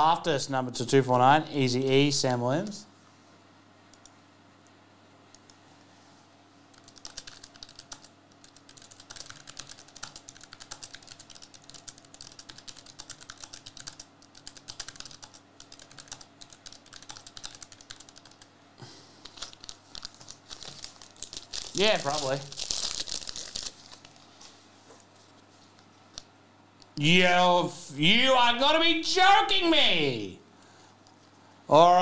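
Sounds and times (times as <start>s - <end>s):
computer keyboard typing: 6.7s - 18.5s, 19.3s - 20.8s
foil pack crinkling: 19.2s - 24.4s.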